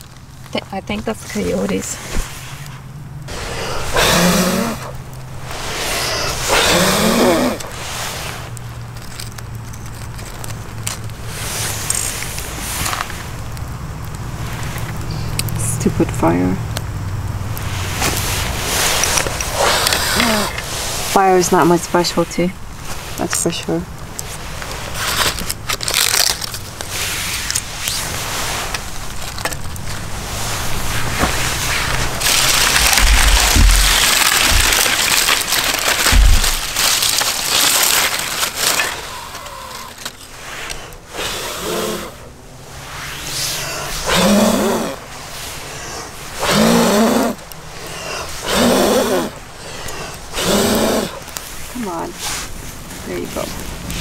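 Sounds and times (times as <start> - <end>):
steady hiss: 0.0 - 54.0
person blowing on fire: 3.3 - 8.6, 17.6 - 21.2, 30.1 - 52.5
leaves and sticks crunching: 22.6 - 40.9.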